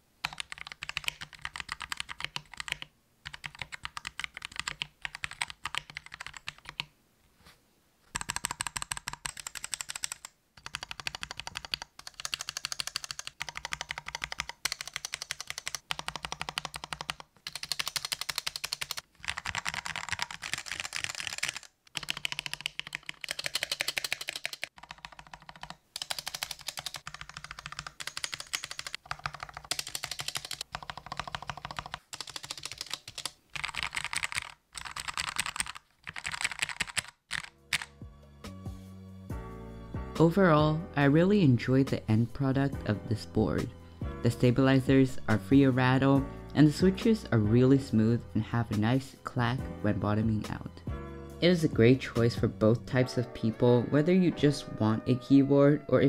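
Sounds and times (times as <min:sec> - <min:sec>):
mechanical keyboard typing: 0:00.2 - 0:06.9, 0:08.1 - 0:37.9.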